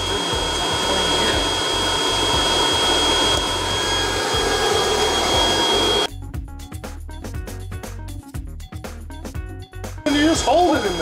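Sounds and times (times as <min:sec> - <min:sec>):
hot air blower rushing and whining: 0:00.0 - 0:06.1, 0:10.1 - 0:11.0
background music: 0:00.0 - 0:11.0.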